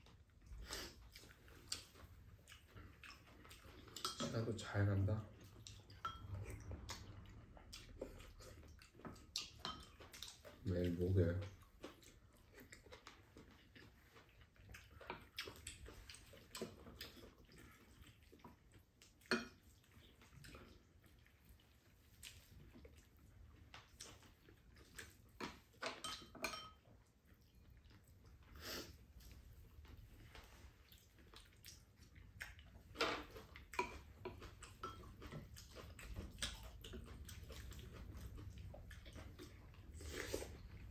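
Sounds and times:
soft chewing: 0:00.0 - 0:40.9
spoons and chopsticks on ceramic bowls: 0:03.7 - 0:06.7, 0:25.4 - 0:26.8.

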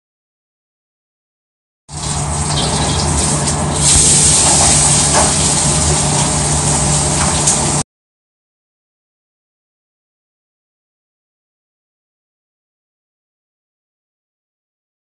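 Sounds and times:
low hum: 0:02.0 - 0:07.8
loud hissing rush: 0:03.0 - 0:07.8.

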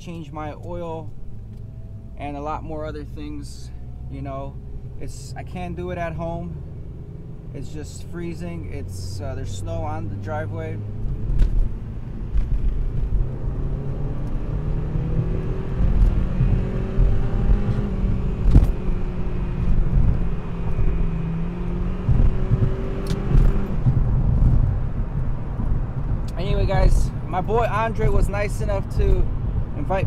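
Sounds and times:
tyre and engine rumble: 0:00.0 - 0:30.0
car engine accelerating: 0:00.7 - 0:30.0.

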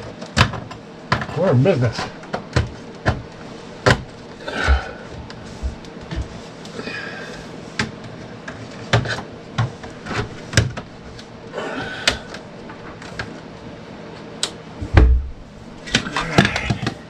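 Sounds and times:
heavier thump: 0:14.8 - 0:15.5.

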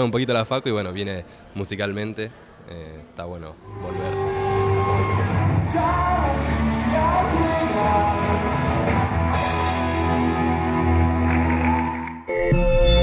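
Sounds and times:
live rock band playing: 0:03.8 - 0:12.0
man singing: 0:05.0 - 0:09.0.

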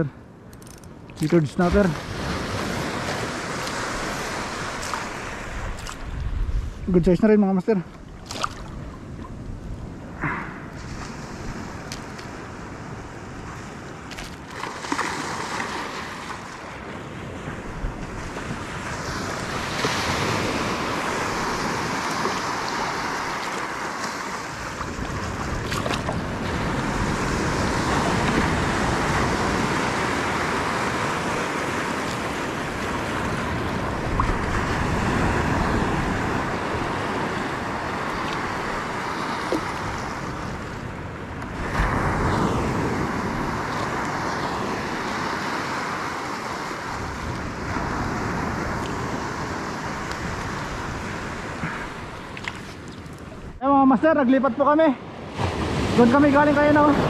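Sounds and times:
wind buffeting microphone: 0:00.9 - 0:14.4
shallow sea water washing: 0:01.1 - 0:06.2, 0:18.0 - 0:53.5.

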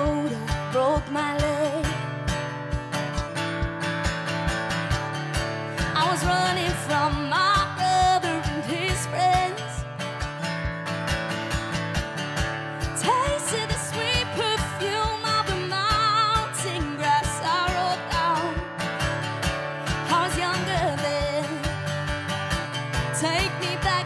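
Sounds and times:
woman singing: 0:00.0 - 0:02.4, 0:05.7 - 0:10.0, 0:12.8 - 0:19.0, 0:19.8 - 0:22.0, 0:22.9 - 0:24.0
acoustic guitar strumming: 0:00.0 - 0:24.0
cajon beat: 0:00.0 - 0:24.0.

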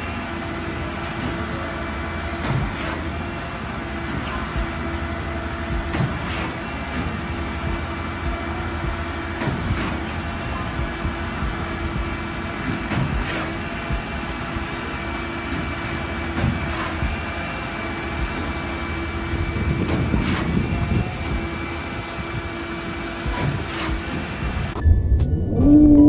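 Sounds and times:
diesel engines running: 0:00.0 - 0:26.0
thin high whine: 0:24.8 - 0:26.0.

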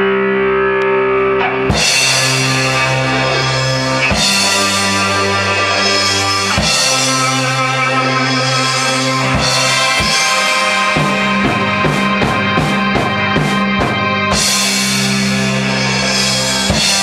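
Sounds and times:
rock band playing live: 0:00.0 - 0:17.0
cymbals: 0:01.6 - 0:17.0.

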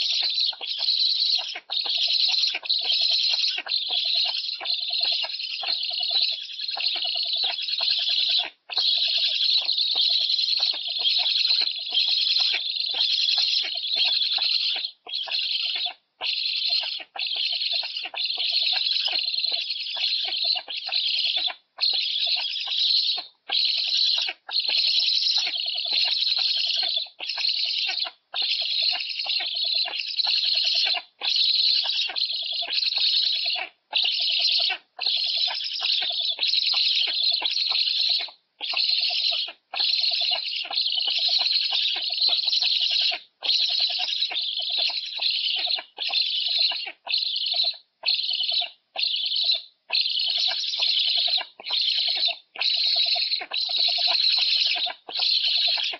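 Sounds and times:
storks rasping calls: 0:00.0 - 0:29.3.

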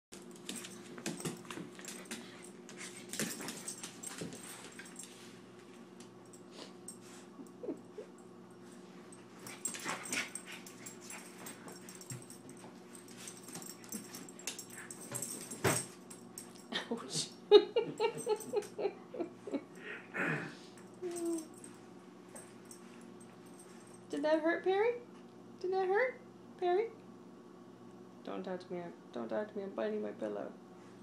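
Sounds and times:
puppy whining: 0:21.0 - 0:21.6.

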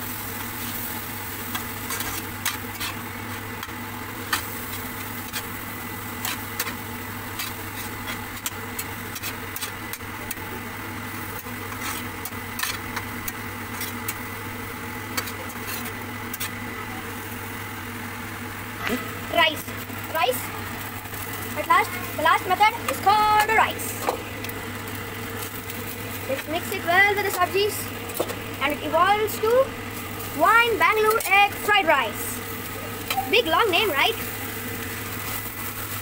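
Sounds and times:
steady mechanical hum: 0:00.0 - 0:36.0
vegetables sizzling: 0:00.0 - 0:36.0.

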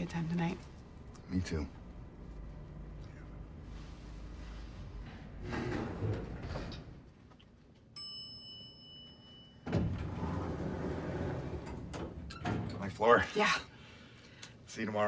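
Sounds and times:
elevator doors sliding open: 0:05.0 - 0:07.0, 0:09.7 - 0:13.0
elevator chime ding: 0:08.0 - 0:10.0.

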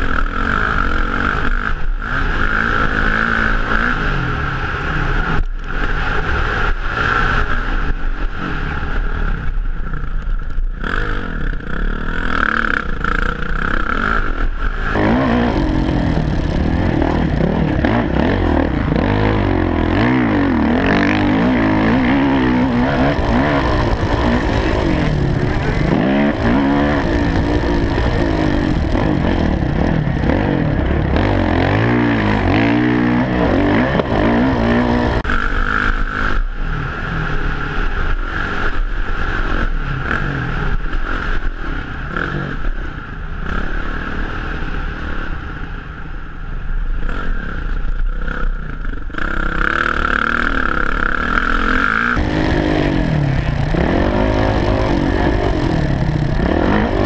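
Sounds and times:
steady high whine: 0:00.0 - 0:41.5, 0:50.1 - 0:57.0
motorcycle engine revving: 0:00.0 - 0:45.2, 0:47.0 - 0:57.0.

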